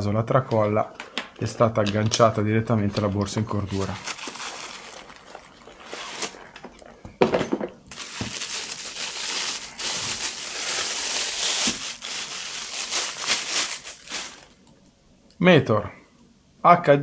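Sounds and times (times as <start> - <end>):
plastic bag crinkling: 3.4 - 6.9, 7.9 - 14.7.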